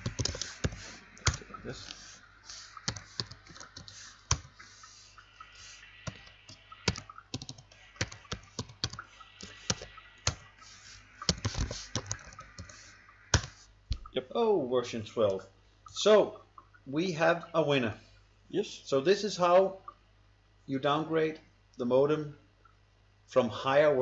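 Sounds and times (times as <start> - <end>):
keyboard typing: 0.0 - 4.9, 6.0 - 14.0.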